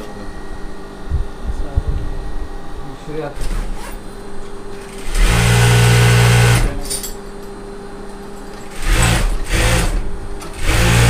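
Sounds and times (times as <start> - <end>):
sewing machine stitching: 3.4 - 4.0, 4.8 - 6.8, 8.7 - 11.0.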